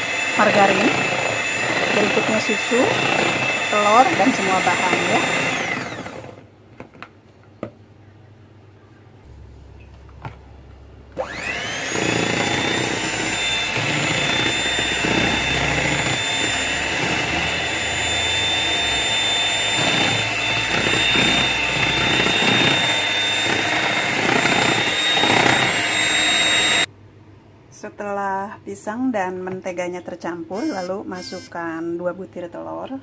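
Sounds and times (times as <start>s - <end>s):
beaters churning banana: 0.0s - 6.4s, 11.1s - 26.9s
electric hand mixer whining: 0.0s - 6.5s, 11.2s - 26.9s, 30.6s - 31.5s.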